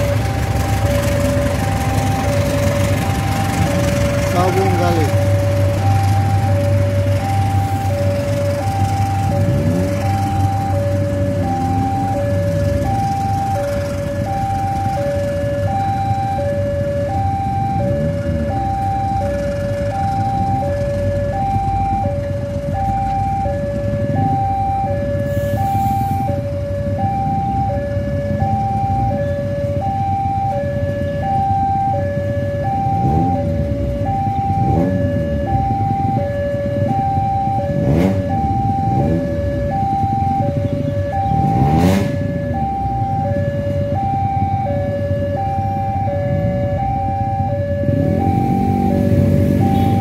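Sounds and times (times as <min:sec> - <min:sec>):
passing train rumble: 0:00.0 - 0:15.7
two-tone crossing alarm: 0:00.0 - 0:50.0.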